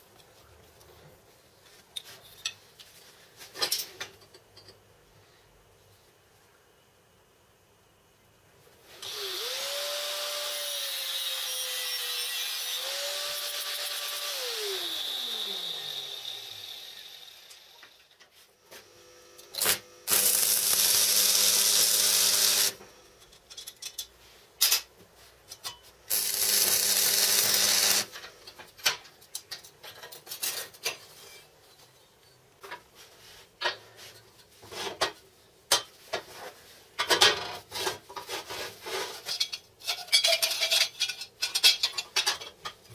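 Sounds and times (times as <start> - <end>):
angle grinder cutting steel: 9.0 - 18.1, 19.1 - 23.1, 26.1 - 28.2
metal parts clanking: 39.2 - 42.8.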